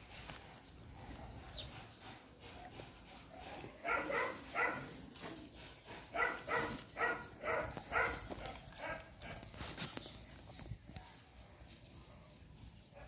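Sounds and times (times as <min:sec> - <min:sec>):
dog barking: 0:03.8 - 0:05.0, 0:06.1 - 0:09.4.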